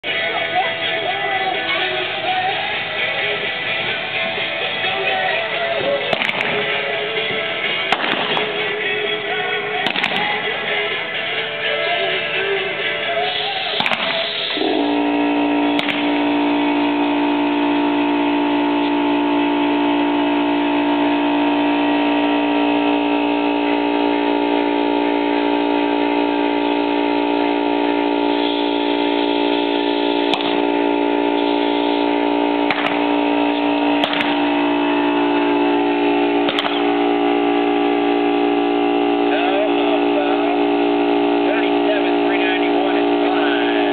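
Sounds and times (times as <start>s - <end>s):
drone of held tones: 0.0s - 43.9s
faint sharp cracks: 34.0s - 34.4s, 36.5s - 36.8s.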